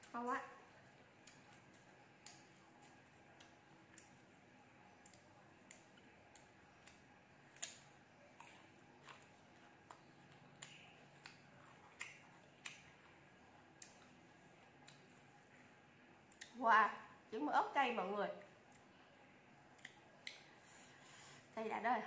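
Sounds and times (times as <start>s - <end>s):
crunchy fruit bites and chewing: 0.8s - 15.5s.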